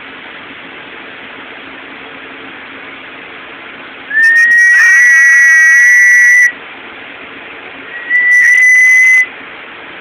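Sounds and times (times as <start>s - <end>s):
high-pitched whistling tone: 4.1s - 6.6s, 7.9s - 9.3s.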